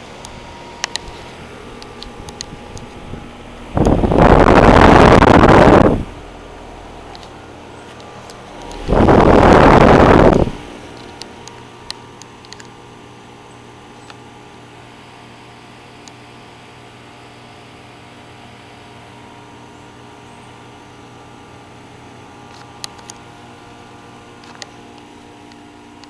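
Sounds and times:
air-conditioner condenser hum: 0.0s - 26.0s
air buffeting microphone: 1.1s - 11.5s.

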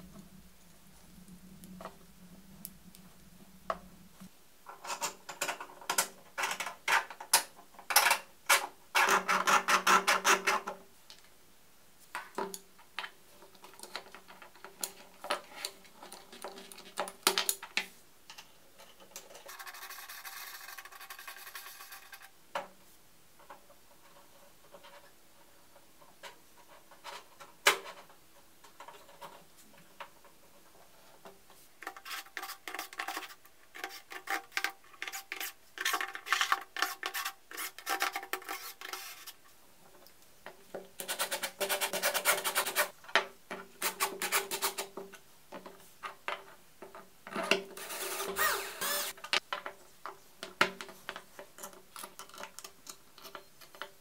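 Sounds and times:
plastic parts scraping and rubbing: 13.4s - 22.4s, 23.4s - 40.1s, 41.0s - 50.2s
plastic parts clicking and knocking: 49.1s - 54.0s.

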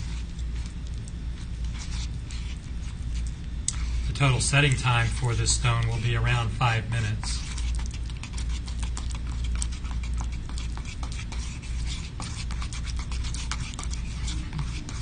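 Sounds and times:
metal spatula scraping a bowl: 6.9s - 15.0s.

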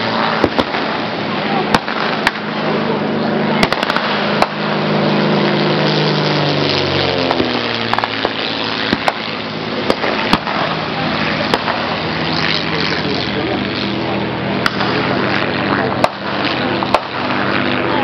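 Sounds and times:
gunshots: 0.0s - 2.8s, 3.5s - 6.3s, 7.2s - 13.5s, 16.0s - 17.4s
propeller plane flying past: 0.0s - 18.0s.

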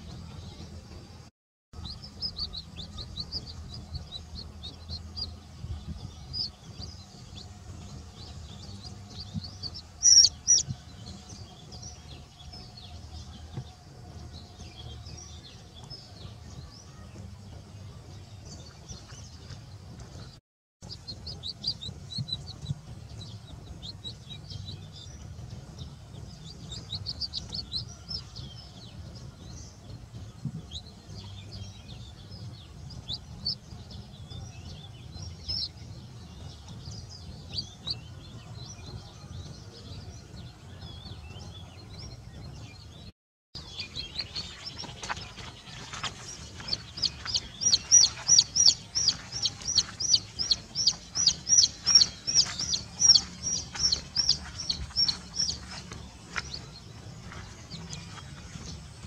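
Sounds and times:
steady low rumble: 0.0s - 59.0s
chick peeping: 1.8s - 12.9s, 20.8s - 28.5s, 43.6s - 58.8s.

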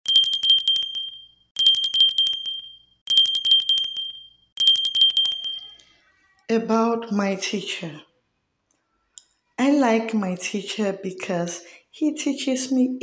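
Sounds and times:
bell ringing in trills: 0.1s - 5.9s.

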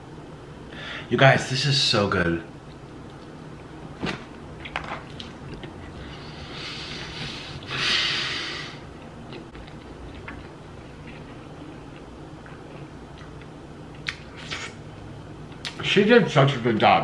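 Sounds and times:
heavy breaths through nose: 6.0s - 8.8s.

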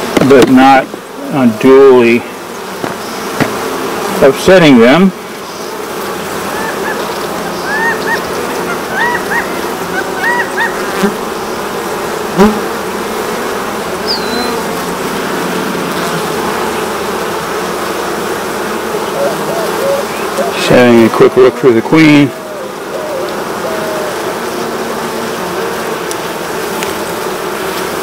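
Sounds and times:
bees humming: 0.0s - 28.0s
sharp knock: 2.8s - 3.6s.

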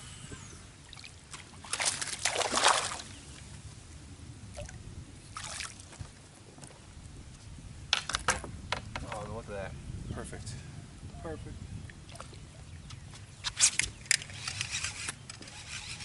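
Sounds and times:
fish splashing at water surface: 0.9s - 3.1s.

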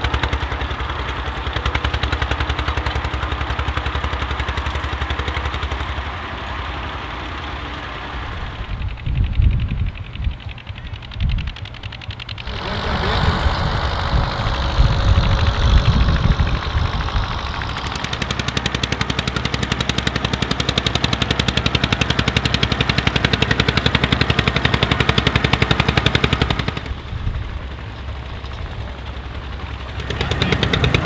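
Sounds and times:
tractor diesel engine chugging: 0.0s - 31.0s.

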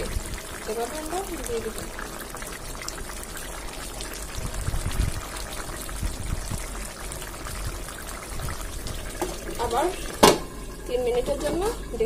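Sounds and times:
curry bubbling in a pot: 0.0s - 12.0s.

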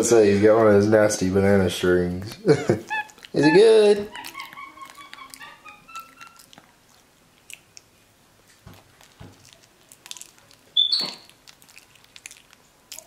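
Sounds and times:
monkey chewing banana: 2.4s - 13.0s.

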